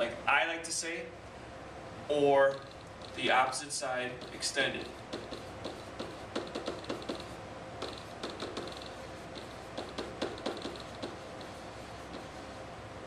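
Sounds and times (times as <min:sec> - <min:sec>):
pen tapping and scratching on whiteboard: 0:04.2 - 0:12.5.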